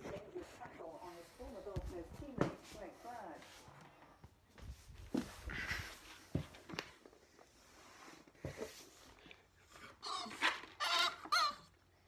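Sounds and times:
dog whining: 0:09.7 - 0:11.8.

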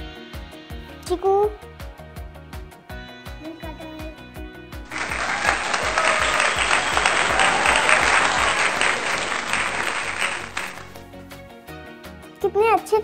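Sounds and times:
applause: 0:04.9 - 0:11.0.

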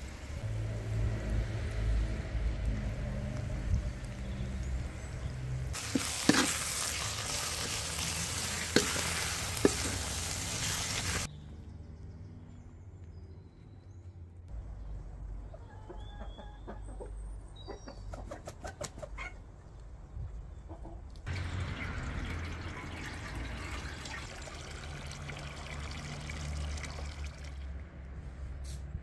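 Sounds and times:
water pouring into metal pot: 0:05.8 - 0:11.3, 0:21.3 - 0:27.7
chickens clucking: 0:15.3 - 0:19.5, 0:20.5 - 0:21.2.

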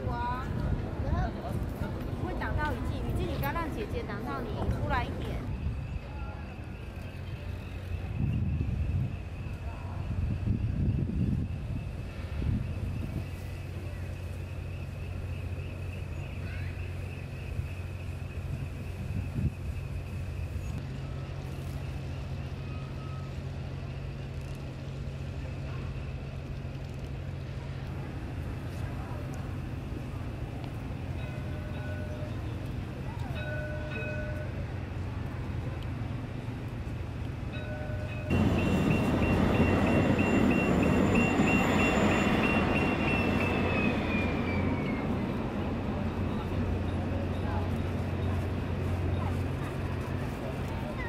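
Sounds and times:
tram rumbling past: 0:00.0 - 0:51.0
faint high whine: 0:05.4 - 0:51.0
high warning beeps: 0:37.7 - 0:45.1.

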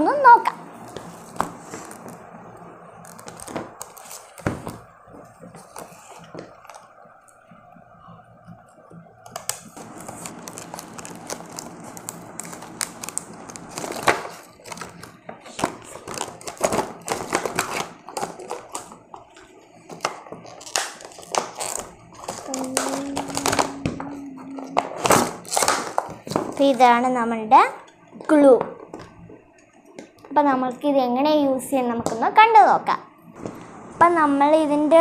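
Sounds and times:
plastic crackling and crinkling: 0:00.7 - 0:07.4, 0:09.2 - 0:27.2.

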